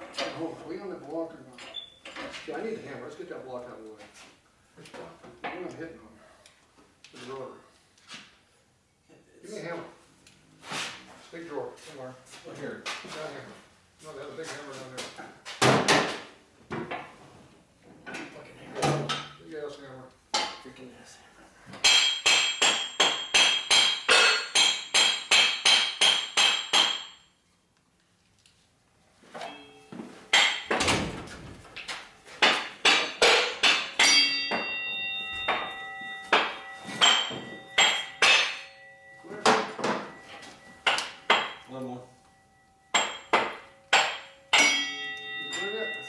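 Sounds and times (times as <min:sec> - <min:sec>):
hammer pounding on metal: 0:21.8 - 0:27.2, 0:29.4 - 0:31.2, 0:32.3 - 0:41.7, 0:42.9 - 0:46.0.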